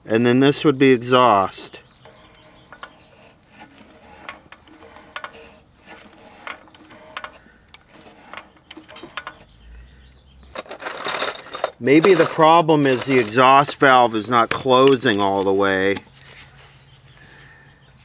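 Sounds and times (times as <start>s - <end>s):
engine parts clicking: 1.9s - 16.2s.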